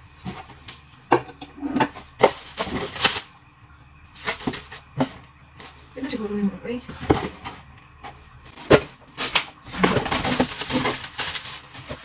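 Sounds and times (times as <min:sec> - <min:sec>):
plastic wrapping crinkling: 0:02.1 - 0:03.4, 0:08.5 - 0:12.0
cardboard rustling and knocking: 0:06.9 - 0:09.1, 0:09.7 - 0:12.0.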